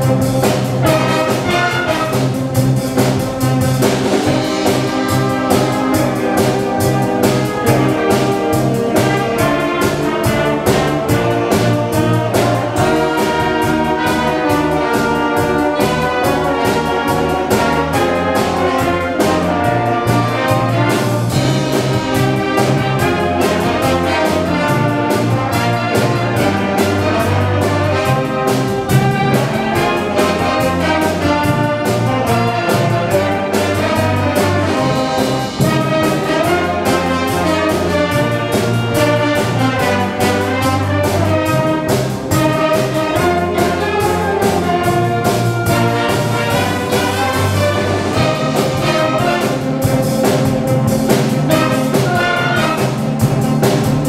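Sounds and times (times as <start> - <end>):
steady beat: 0.0 - 54.0
wind band playing pop arrangement: 0.0 - 54.0.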